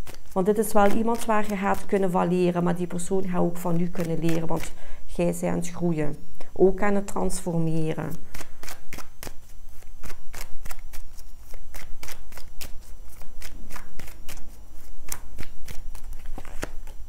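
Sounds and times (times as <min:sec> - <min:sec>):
cards being shuffled: 0:00.0 - 0:01.9, 0:08.3 - 0:17.0.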